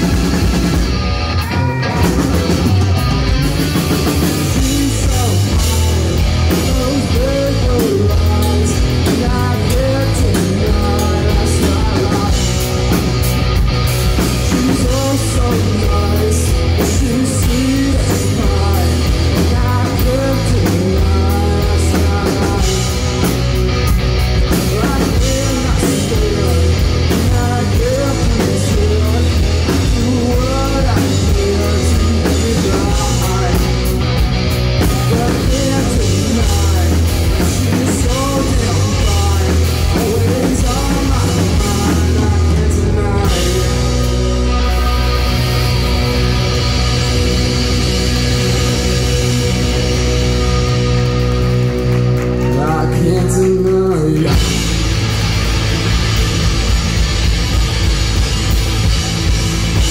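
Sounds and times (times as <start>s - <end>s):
distorted electric guitar: 0.0s - 59.9s
drum kit: 0.0s - 59.9s
electric bass: 0.0s - 59.9s
person singing into microphone: 4.4s - 12.9s, 14.4s - 23.2s, 24.5s - 34.0s, 34.8s - 44.8s, 52.4s - 54.6s.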